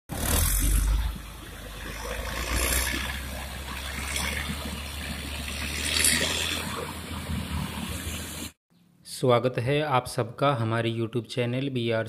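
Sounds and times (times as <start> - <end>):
diesel engine humming: 0.1 - 8.4.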